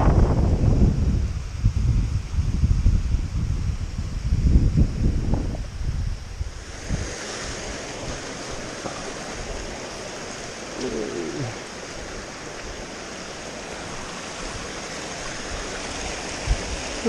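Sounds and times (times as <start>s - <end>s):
stream rushing over stones: 6.4s - 17.0s.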